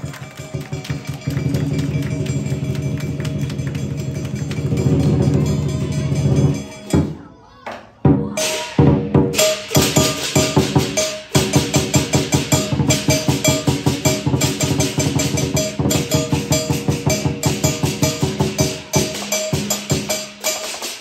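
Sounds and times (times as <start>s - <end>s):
drum strokes: 0.0s - 7.2s, 8.1s - 21.0s
clashing cymbals and gong: 8.4s - 21.0s.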